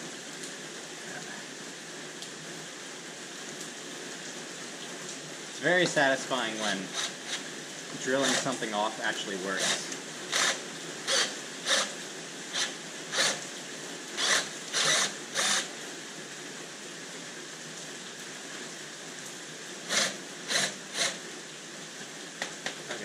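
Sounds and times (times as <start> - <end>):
cordless drill bursts: 6.5 - 7.5, 8.1 - 8.7, 9.6 - 13.4, 14.2 - 15.7, 19.9 - 21.2.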